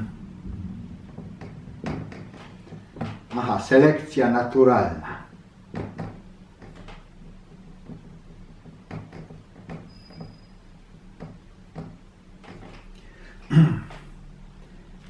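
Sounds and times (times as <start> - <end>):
marker squeak: 9.8 - 10.7.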